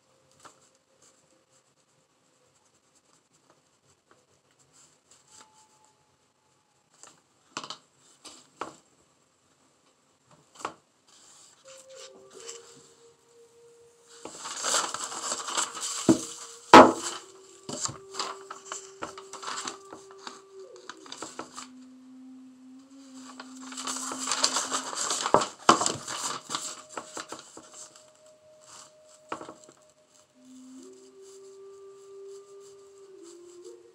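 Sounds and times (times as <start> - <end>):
soft steady background tones: 0.0 - 33.9
paper rustling and crinkling: 0.3 - 1.2, 10.4 - 13.1, 14.0 - 21.8, 22.9 - 33.8.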